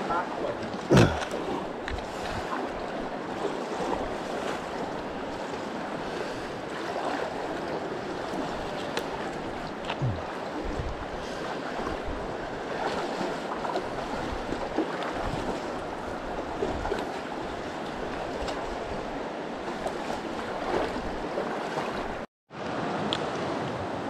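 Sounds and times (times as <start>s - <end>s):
water rushing over rocks: 0.0s - 18.4s.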